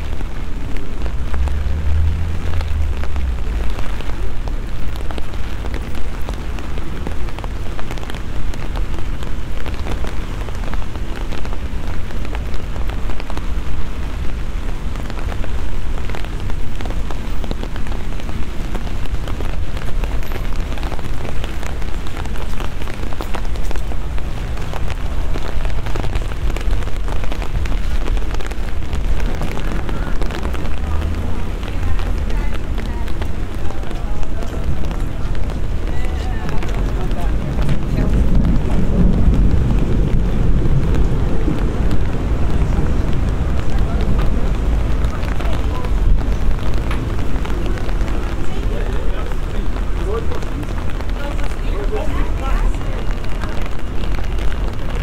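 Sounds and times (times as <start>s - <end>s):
low rumble: 0.0s - 5.8s, 23.9s - 48.4s
rain on paving stones: 0.0s - 55.0s.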